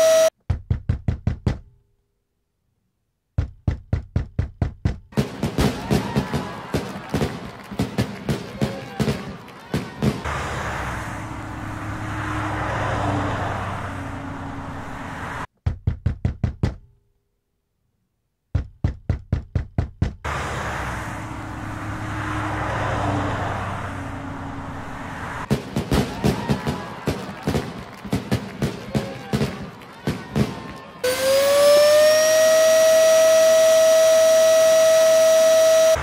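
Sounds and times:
rapid knocking on a door: 0:00.5 - 0:01.7, 0:03.4 - 0:05.2, 0:15.6 - 0:16.9, 0:18.5 - 0:20.2
car passing: 0:10.0 - 0:15.5, 0:20.3 - 0:25.8.

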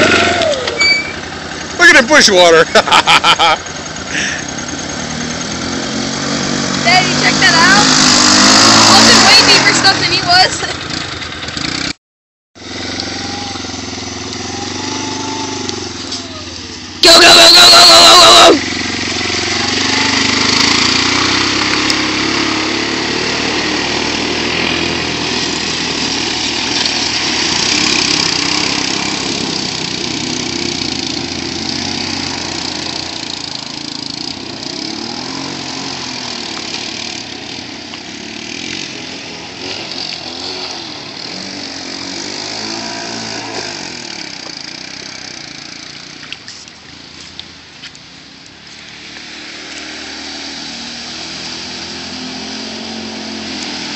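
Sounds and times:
atv engine revving: 0:00.0 - 0:12.0, 0:12.6 - 0:53.9
water splashing: 0:17.9 - 0:38.1, 0:44.8 - 0:53.9.

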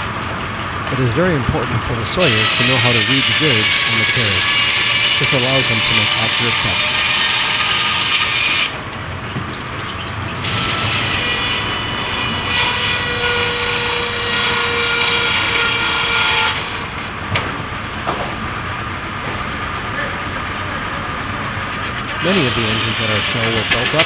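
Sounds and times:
machinery whine: 0:00.0 - 0:24.0
circular saw cutting log: 0:00.9 - 0:08.9, 0:10.4 - 0:24.0
sharp knocks: 0:17.3 - 0:18.5.

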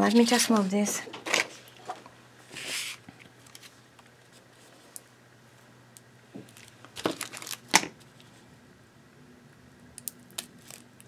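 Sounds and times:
tape rustling: 0:06.4 - 0:08.4, 0:10.0 - 0:11.0
tape tearing: 0:06.5 - 0:08.0.

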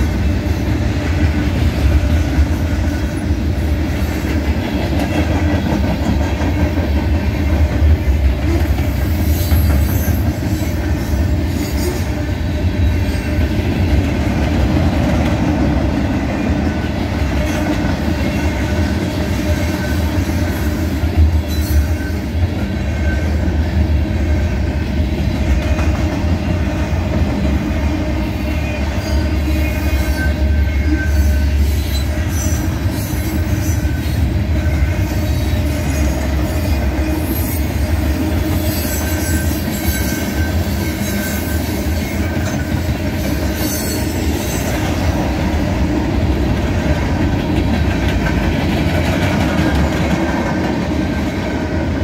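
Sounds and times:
freight train wheels rumbling: 0:00.0 - 0:52.0
high wheel squeals: 0:38.6 - 0:44.8.

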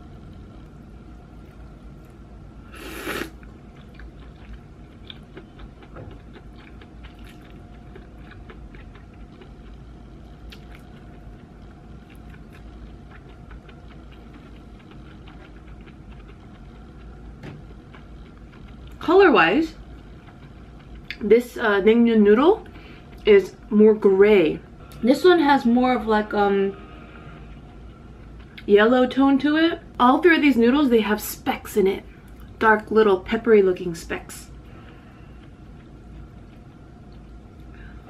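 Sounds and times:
person slurping noodles: 0:02.7 - 0:03.4
wet chewing mouth clicks: 0:02.8 - 0:19.0, 0:19.9 - 0:21.2.

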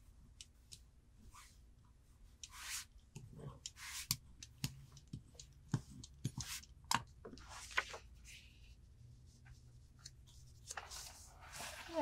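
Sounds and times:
sharp clicks and taps: 0:03.1 - 0:07.1.

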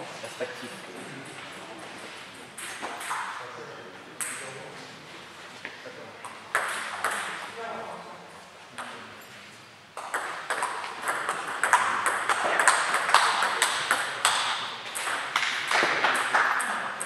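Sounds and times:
table tennis ball clicking: 0:10.0 - 0:17.0.

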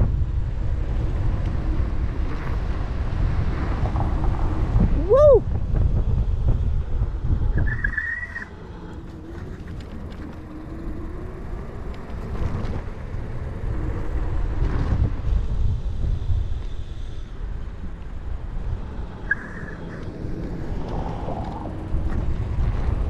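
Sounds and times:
scooter road rumble: 0:00.0 - 0:23.0
wind buffeting microphone: 0:00.0 - 0:23.0
brief high squeal: 0:07.6 - 0:08.5, 0:19.3 - 0:20.0.

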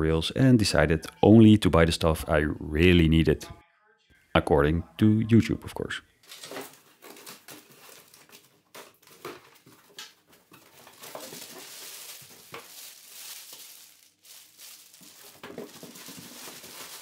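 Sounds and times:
cardboard rustling: 0:06.2 - 0:17.0
plastic package crinkling: 0:06.2 - 0:17.0.

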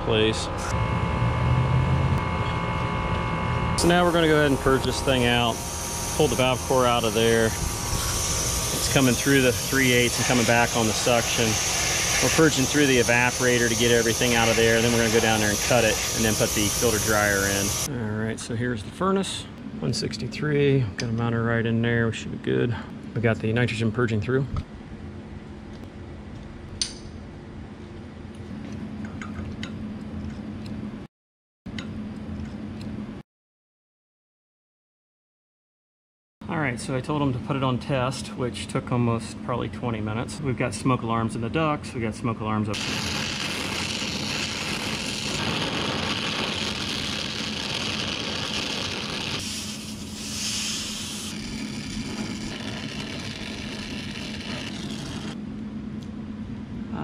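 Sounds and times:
low machine hum: 0:00.0 - 0:31.0
torch flame hissing: 0:03.8 - 0:17.9, 0:42.8 - 0:55.4.

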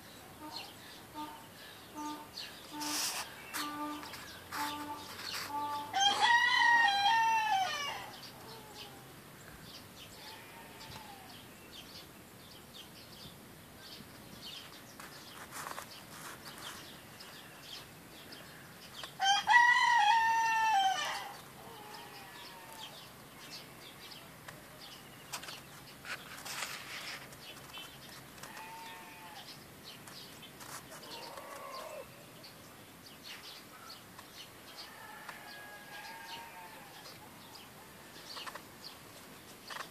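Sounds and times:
faint short bird calls: 0:00.2 - 0:06.3, 0:30.9 - 0:32.3
rooster crowing: 0:05.9 - 0:08.9, 0:19.2 - 0:22.2, 0:34.8 - 0:37.0.

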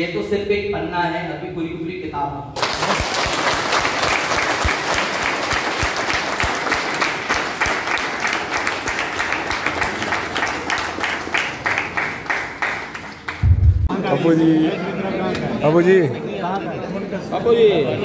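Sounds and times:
audience applauding: 0:02.6 - 0:13.6.

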